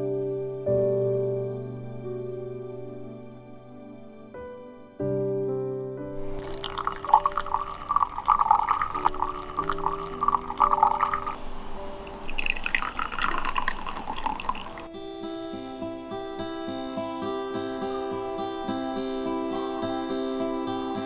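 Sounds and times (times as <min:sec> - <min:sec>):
soft music: 0:00.0 - 0:21.0
tea pouring into cup: 0:06.2 - 0:14.9
water pouring onto tea leaves: 0:06.2 - 0:14.9.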